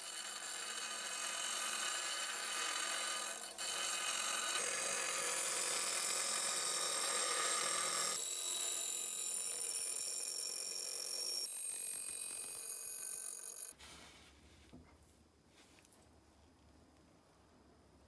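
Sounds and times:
belt grinder grinding steel: 0.0 - 13.7.

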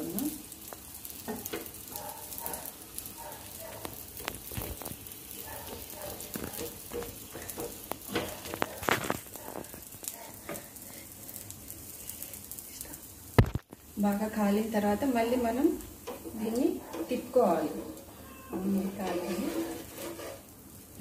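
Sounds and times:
batter sizzling in oil: 0.0 - 21.0
spatula tapping and scraping pan: 1.2 - 2.6, 3.7 - 10.8, 15.8 - 20.5.

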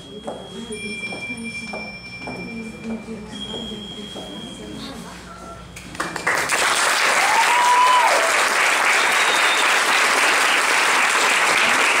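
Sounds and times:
audience clapping: 5.9 - 12.0.

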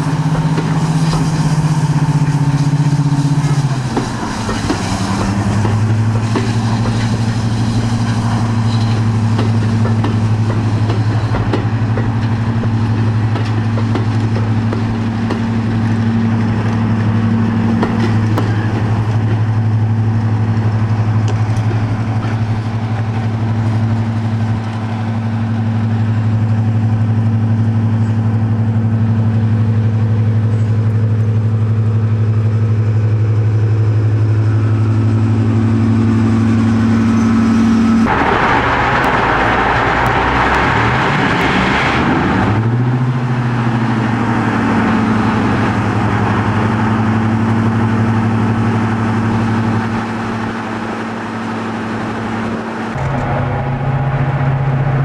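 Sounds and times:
diesel locomotive deep drone: 0.0 - 55.0.

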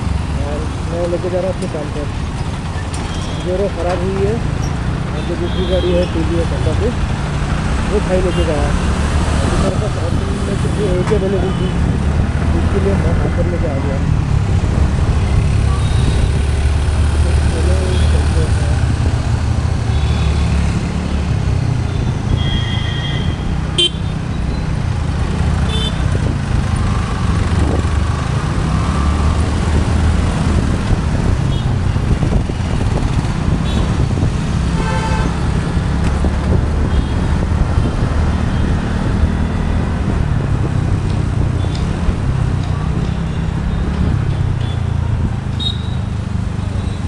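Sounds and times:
wind and road noise: 0.0 - 47.0
vehicle horns tooting: 21.9 - 24.1, 25.7 - 26.1, 34.7 - 35.4, 45.6 - 46.0.

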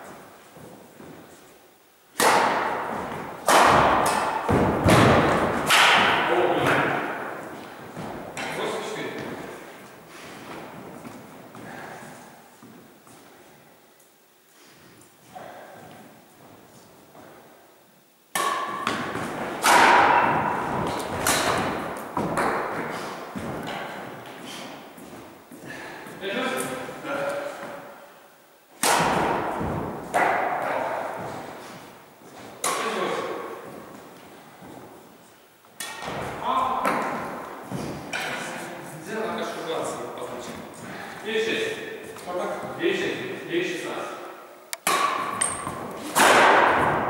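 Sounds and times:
footsteps on wooden floor: 0.0 - 1.5, 7.4 - 8.4, 9.1 - 13.6, 20.2 - 26.2
rackets striking shuttlecock: 2.1 - 7.7, 18.3 - 24.0, 28.8 - 31.3, 35.8 - 36.2, 44.8 - 47.0.

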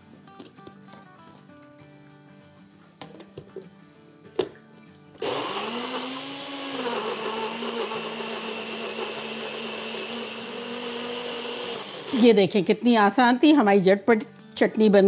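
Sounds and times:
blender motor whirring: 5.2 - 12.5.

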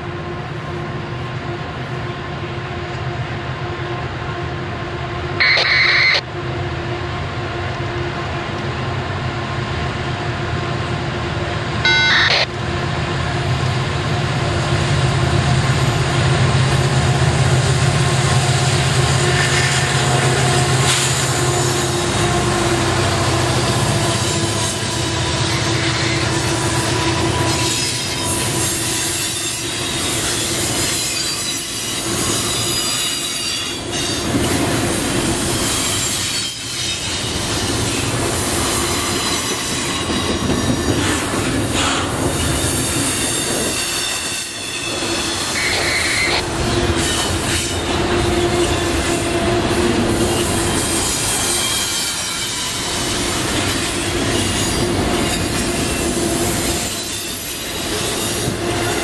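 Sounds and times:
train wheels squealing: 23.7 - 59.0.

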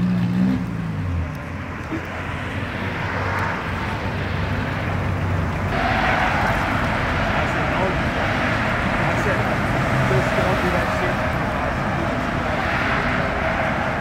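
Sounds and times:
car engines humming: 0.0 - 14.0
traffic hiss: 1.8 - 14.0.

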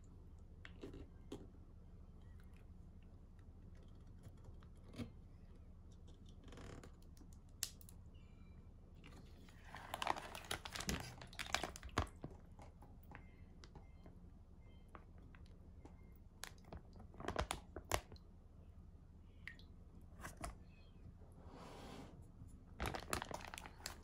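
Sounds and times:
plastic bag crinkling: 9.6 - 12.3, 16.7 - 18.1, 22.8 - 24.0.

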